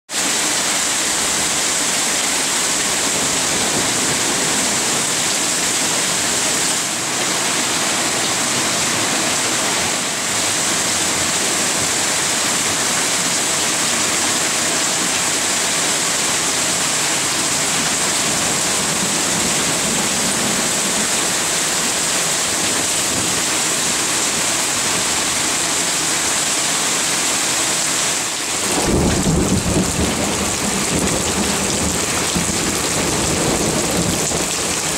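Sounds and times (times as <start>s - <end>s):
heavy rain pouring: 0.1s - 34.9s
water sheeting off roof: 0.1s - 34.9s
low rumble of thunder: 28.6s - 34.9s.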